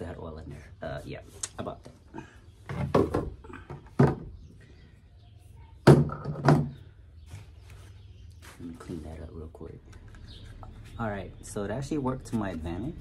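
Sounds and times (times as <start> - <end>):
plastic jug knocks and thumps: 2.6 - 4.5, 5.8 - 6.8.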